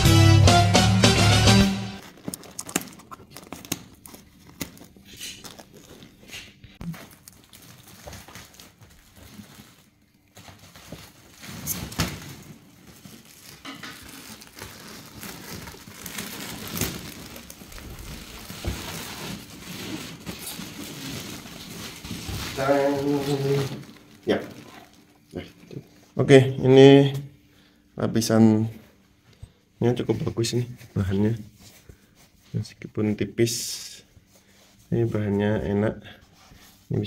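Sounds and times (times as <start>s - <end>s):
plastic wrapping crinkling: 1.9s - 26.1s.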